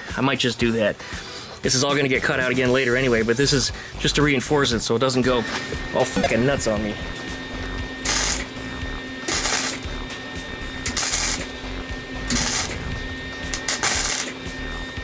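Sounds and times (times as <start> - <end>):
welder arc bursts: 5.3 - 15.0.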